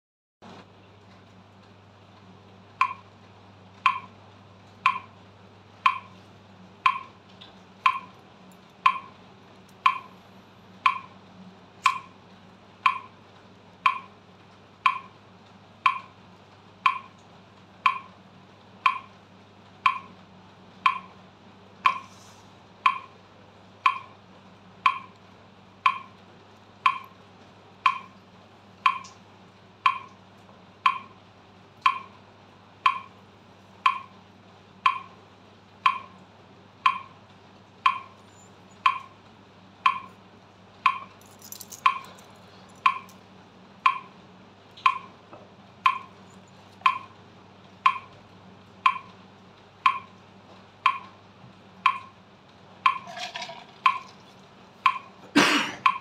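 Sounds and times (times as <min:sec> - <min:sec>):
metronome ticking: 0:02.8 - 0:03.1, 0:03.8 - 0:04.2, 0:04.8 - 0:05.2, 0:05.8 - 0:06.2, 0:06.8 - 0:07.2, 0:07.8 - 0:08.2, 0:08.8 - 0:09.2, 0:09.8 - 0:10.2, 0:10.8 - 0:11.2, 0:11.8 - 0:12.2, 0:12.8 - 0:13.2, 0:13.8 - 0:14.2, 0:14.8 - 0:15.2, 0:15.8 - 0:16.2, 0:16.8 - 0:17.2, 0:17.8 - 0:18.2, 0:18.8 - 0:19.1, 0:19.8 - 0:20.2, 0:20.8 - 0:21.2, 0:21.8 - 0:22.1, 0:22.8 - 0:23.2, 0:23.8 - 0:24.2, 0:24.8 - 0:25.2, 0:25.8 - 0:26.2, 0:26.8 - 0:27.2, 0:27.8 - 0:28.2, 0:28.8 - 0:29.2, 0:29.8 - 0:30.2, 0:30.8 - 0:31.2, 0:31.8 - 0:32.2, 0:32.8 - 0:33.2, 0:33.8 - 0:34.2, 0:34.8 - 0:35.2, 0:35.8 - 0:36.2, 0:36.8 - 0:37.2, 0:37.8 - 0:39.2, 0:39.8 - 0:40.2, 0:40.8 - 0:42.2, 0:42.8 - 0:43.2, 0:43.8 - 0:44.2, 0:44.8 - 0:45.2, 0:45.8 - 0:47.2, 0:47.8 - 0:48.2, 0:48.8 - 0:49.2, 0:49.8 - 0:50.2, 0:50.8 - 0:51.2, 0:51.8 - 0:52.2, 0:52.8 - 0:53.2, 0:54.8 - 0:55.2.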